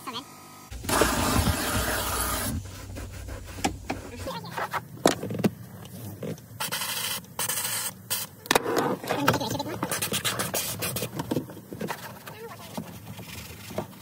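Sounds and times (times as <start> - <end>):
steam cleaner hissing: 0.7 - 4.5
low hum: 0.7 - 5.0.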